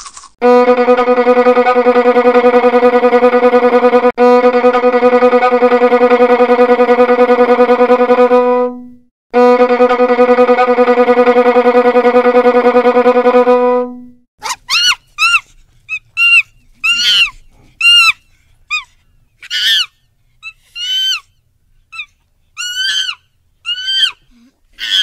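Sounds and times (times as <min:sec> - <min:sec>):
violin bowing held note: 0:00.4 - 0:14.2.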